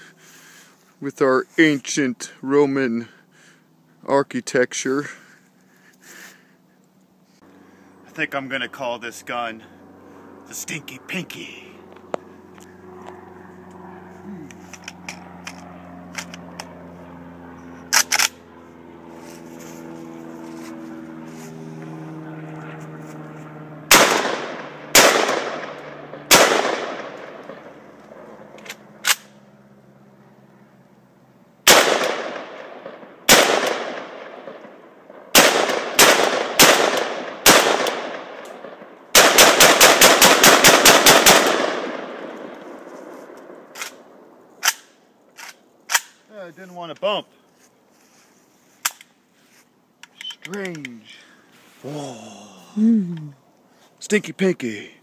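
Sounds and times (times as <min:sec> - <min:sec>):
rifle gunshots echoing: 0:23.9 - 0:27.8, 0:31.6 - 0:44.9.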